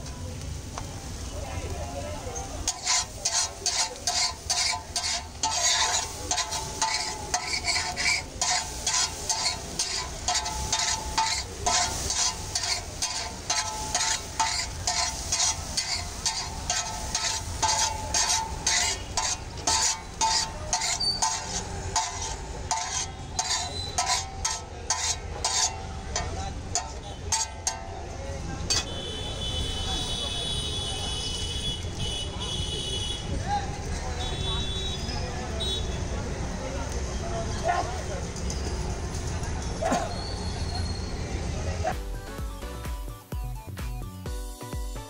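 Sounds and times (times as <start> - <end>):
metal spatula scraping griddle: 2.2 - 30.1.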